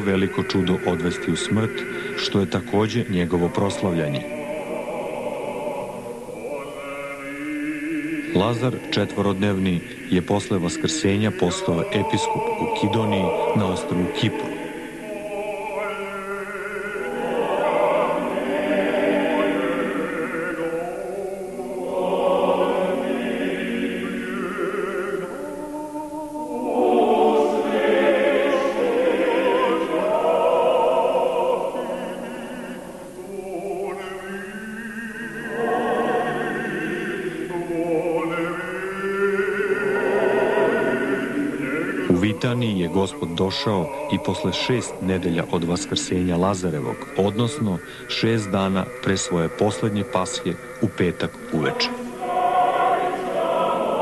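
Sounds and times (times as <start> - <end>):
choir singing a slow chant: 0.0 - 54.0
singers breathing: 1.9 - 2.2, 47.8 - 48.1.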